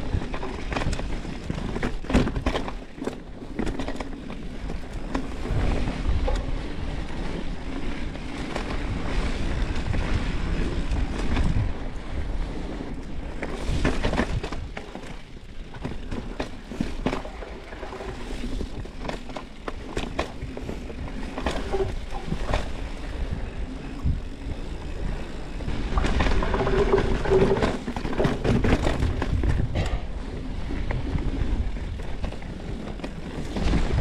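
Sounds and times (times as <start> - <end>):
bike rattling over bumps: 0.0 - 34.0
bike tyres on dirt: 0.0 - 34.0
wind buffeting microphone: 4.5 - 14.8, 20.1 - 34.0.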